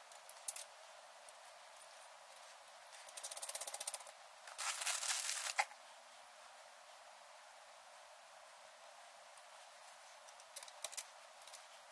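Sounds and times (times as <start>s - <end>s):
ratchet clicking: 3.1s - 4.1s.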